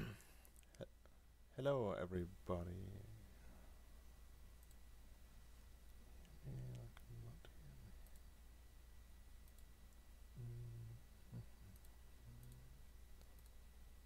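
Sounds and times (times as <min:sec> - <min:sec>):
faint low humming voice: 0:01.6 - 0:03.4, 0:06.2 - 0:08.1, 0:10.3 - 0:13.2
faint clicks: 0:04.6 - 0:04.8, 0:08.0 - 0:08.3, 0:09.4 - 0:10.0, 0:11.7 - 0:13.6.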